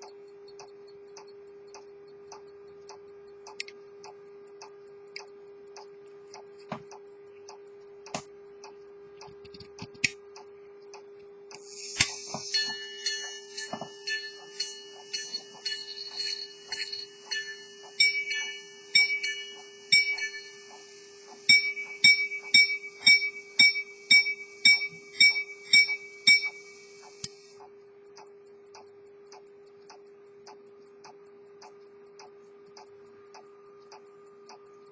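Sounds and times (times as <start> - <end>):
faint steady hum: 0.0 - 34.9
watch ticking: 0.0 - 34.9
pocket watch striking gongs: 11.6 - 27.5.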